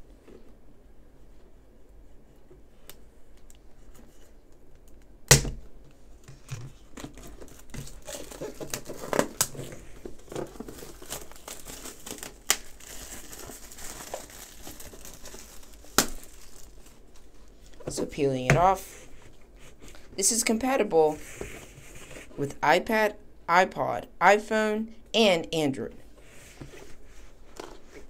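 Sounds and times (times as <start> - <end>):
tape crinkling and tearing: 6.9 - 17.4.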